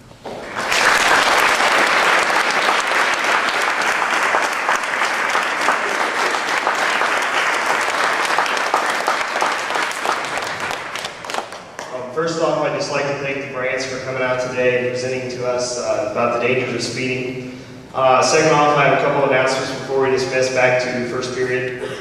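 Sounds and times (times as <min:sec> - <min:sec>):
audience applauding: 0:00.2 - 0:12.0.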